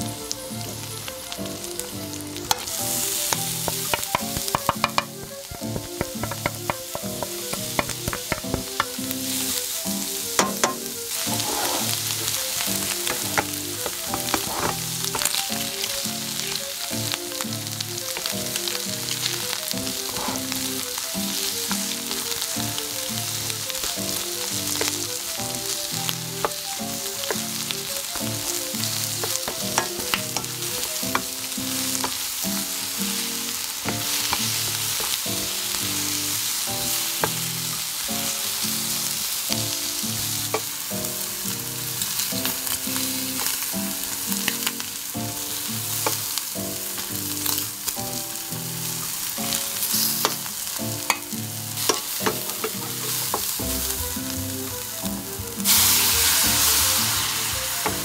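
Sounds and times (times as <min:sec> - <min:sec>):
prawns sizzling in a pan: 0:00.0 - 0:58.0
soft lo-fi music: 0:00.0 - 0:58.0
wooden spatula scraping pan: 0:10.4 - 0:15.4, 0:20.0 - 0:20.6, 0:51.9 - 0:53.6.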